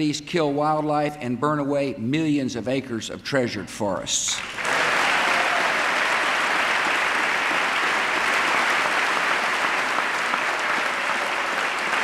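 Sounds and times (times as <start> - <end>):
large audience applauding: 4.4 - 12.0.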